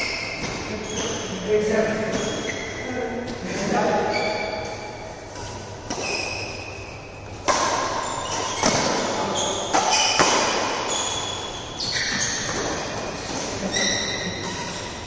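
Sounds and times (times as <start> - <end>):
shoes squeaking on court: 0.0 - 15.0
rackets hitting shuttlecock: 4.8 - 6.7, 7.3 - 14.9.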